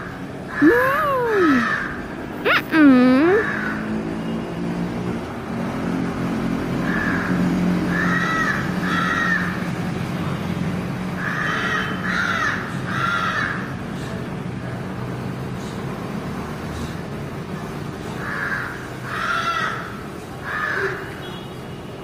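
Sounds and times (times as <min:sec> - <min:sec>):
crow cawing: 0:01.3 - 0:02.0, 0:03.4 - 0:03.8, 0:06.8 - 0:09.6, 0:11.2 - 0:13.8, 0:18.2 - 0:21.1.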